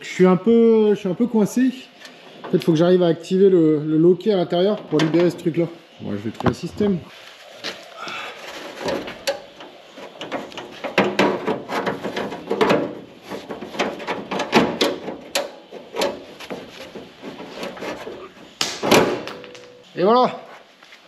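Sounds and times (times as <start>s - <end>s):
hand tools clicking and scraping on latch: 8.8s - 18.0s.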